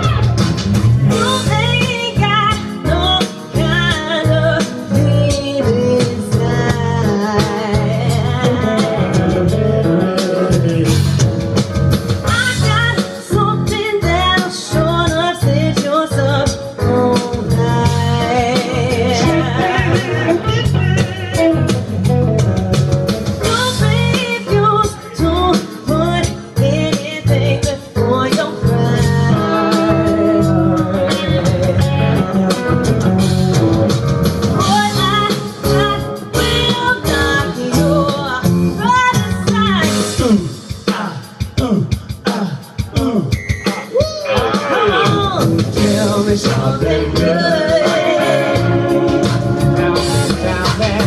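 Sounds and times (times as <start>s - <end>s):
blues electric guitar: 0.0s - 40.6s, 43.7s - 51.0s
woman singing into a microphone: 1.1s - 11.0s, 12.3s - 21.6s, 23.4s - 32.0s, 34.6s - 40.1s, 44.3s - 49.4s.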